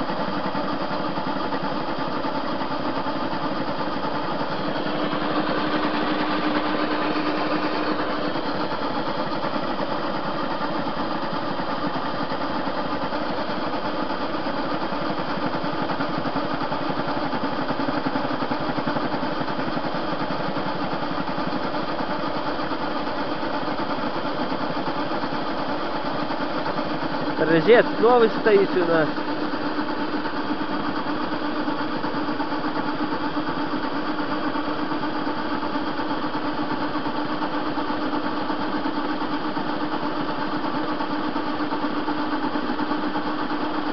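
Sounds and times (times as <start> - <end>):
metal lathe running: 0.0 - 43.9.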